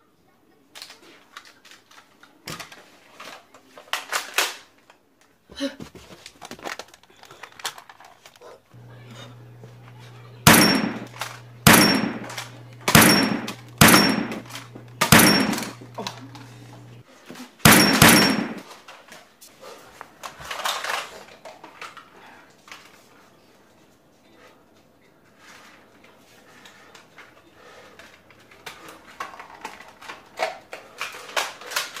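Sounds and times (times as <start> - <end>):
toy blaster bangs: 10.4 - 16.4, 17.7 - 18.6.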